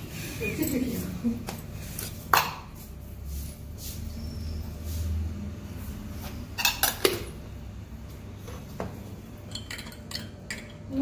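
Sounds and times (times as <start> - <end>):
utensils and dishes clinking: 6.5 - 7.4, 9.4 - 11.0.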